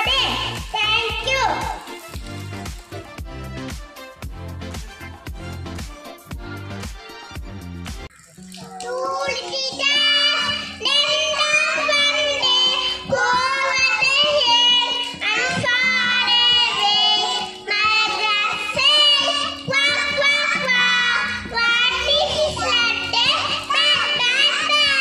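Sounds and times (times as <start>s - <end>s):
children singing: 8.6s - 25.0s
girl singing into a microphone: 8.6s - 25.0s.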